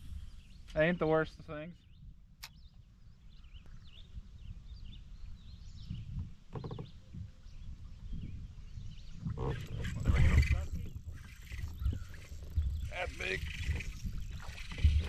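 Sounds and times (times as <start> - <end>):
faint bird chirps: 1.8 - 15.0
wind rumble: 7.0 - 15.0
waves lapping against kayak hull: 9.3 - 15.0.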